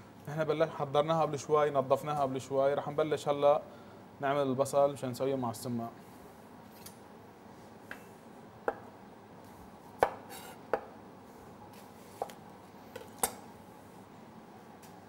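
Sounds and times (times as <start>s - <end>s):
knife cutting onion on plastic board: 10.0s - 10.9s.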